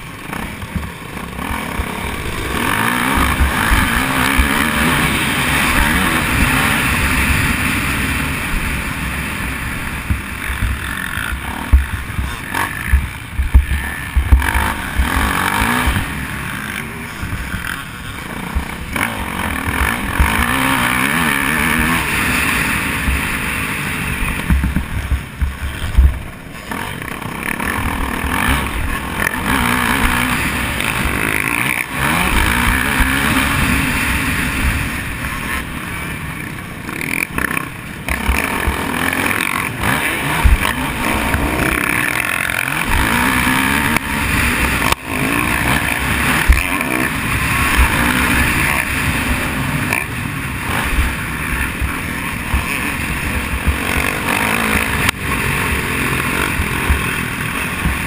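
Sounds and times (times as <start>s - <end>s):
dirt bike engine revving: 0.0s - 58.0s
low thumps on microphone: 12.9s - 14.4s, 24.4s - 26.3s.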